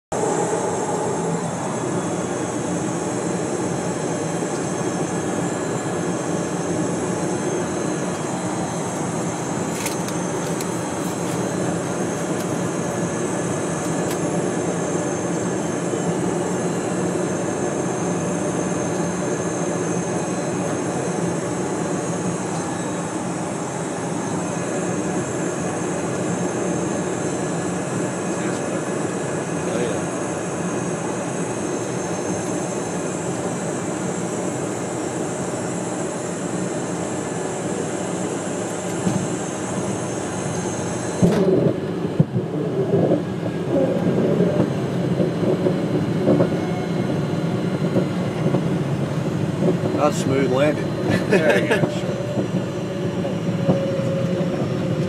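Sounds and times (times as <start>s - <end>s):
airflow rush: 0.1s - 3.1s
jet engines humming: 0.1s - 55.0s
faint high whine: 14.5s - 27.4s.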